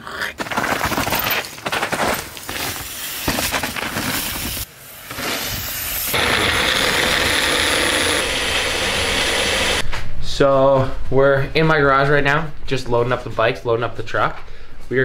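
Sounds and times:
bike clattering over dirt trail: 0.4 - 4.6
blender running: 6.2 - 9.8.

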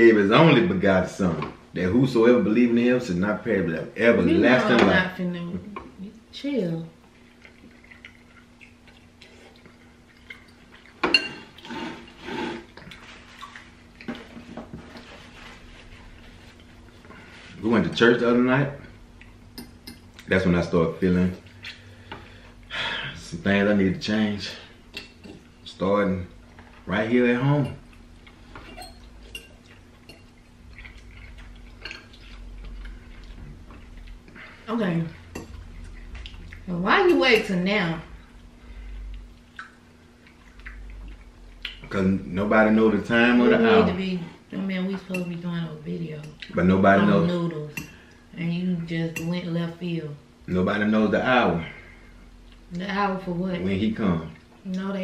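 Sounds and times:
soft eating sounds: 0.3 - 55.0
forks clinking on glass bowls: 28.6 - 30.3.

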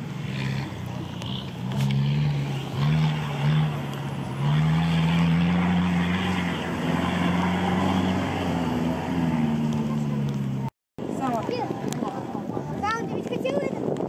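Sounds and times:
off-road engine revving hard: 0.0 - 10.7.

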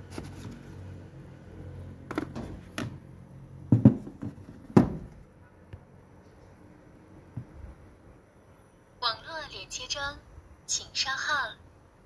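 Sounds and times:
objects knocking on a desk: 2.1 - 3.0, 3.7 - 5.2.

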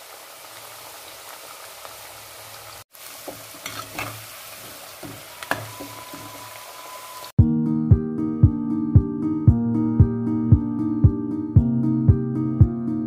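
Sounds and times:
deep-frying sizzle in oil: 0.0 - 7.4
metal spatula scraping pan: 3.3 - 6.6.

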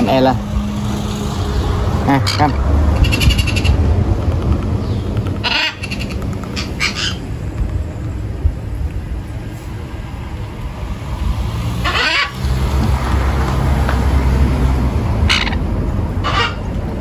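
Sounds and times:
low background rumble: 0.0 - 11.5
parrot chick begging calls: 2.3 - 3.8, 5.4 - 7.2, 11.8 - 12.4, 16.2 - 16.6.

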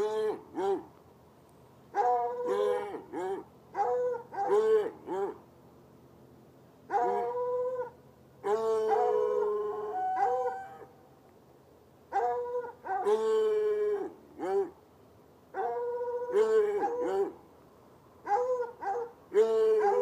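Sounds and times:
hounds baying: 0.0 - 0.9, 1.9 - 5.4, 6.9 - 10.9, 12.1 - 14.8, 15.6 - 17.4, 18.2 - 20.0.

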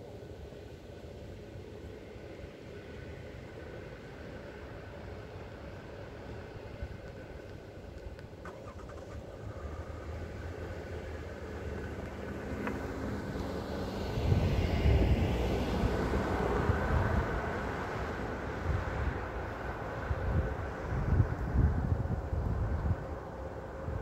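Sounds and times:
car passing by: 8.4 - 24.0.

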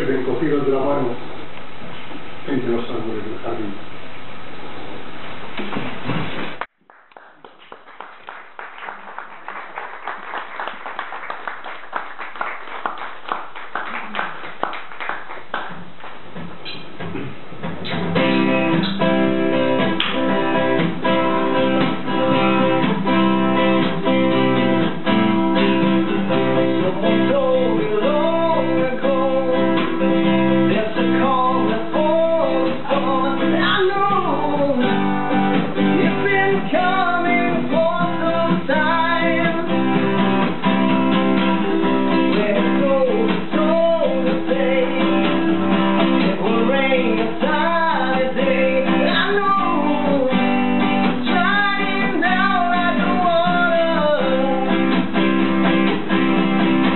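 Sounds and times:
acoustic guitars strumming chords: 10.4 - 56.9
bending guitar melody: 17.8 - 56.9.

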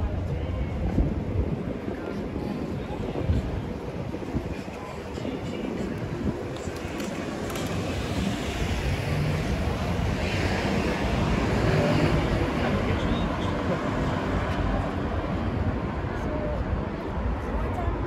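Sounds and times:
cars passing on street: 5.1 - 18.0.

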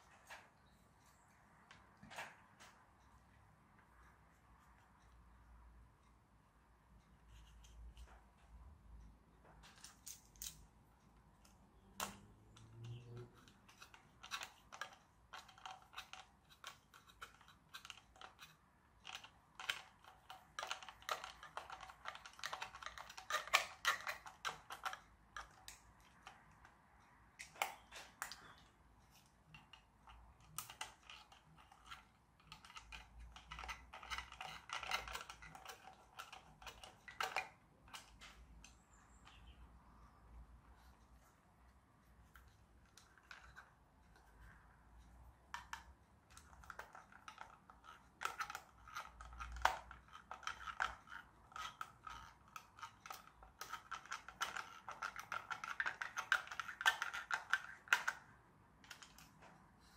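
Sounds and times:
small plastic parts clicking and rattling: 9.5 - 39.6, 42.3 - 59.9.

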